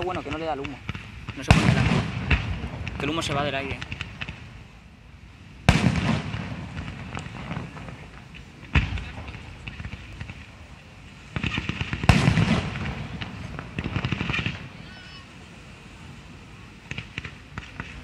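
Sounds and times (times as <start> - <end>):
small firework pops: 0.0 - 4.5, 5.7 - 10.6, 11.3 - 14.7, 16.8 - 18.0
firework crackling: 0.0 - 18.0.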